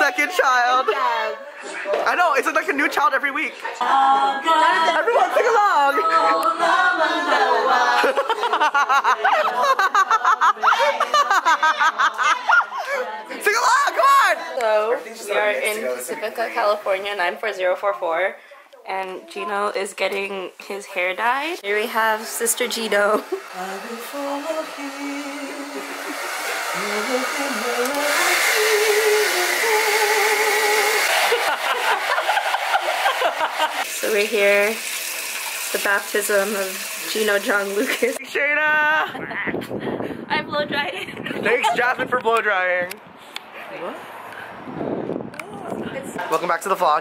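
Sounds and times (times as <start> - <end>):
voices singing along: 3.7 - 14.4, 21.6 - 34.5
rapid laughter in bursts: 7.3 - 13.0, 31.0 - 33.8
hair dryer blowing: 21.6 - 38.2.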